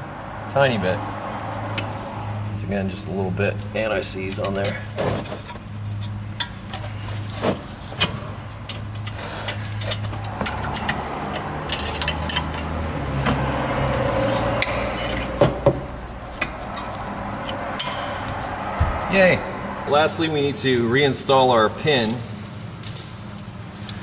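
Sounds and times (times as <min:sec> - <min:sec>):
metallic clicks of hand tools: 0:09.5 - 0:12.7, 0:22.8 - 0:23.4.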